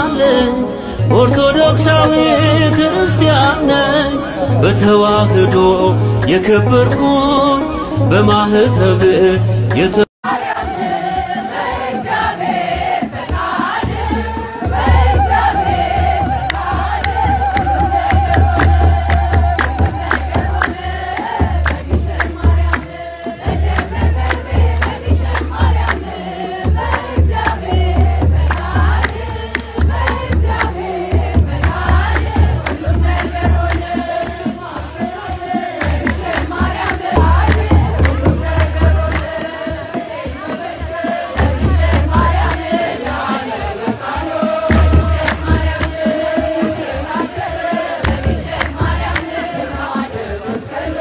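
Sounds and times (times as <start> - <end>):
long wavering held voice: 0.0 - 9.0
crowd singing a hymn: 0.0 - 51.0
rhythmic hand clapping: 1.2 - 51.0
deep low drum beat: 26.6 - 49.9.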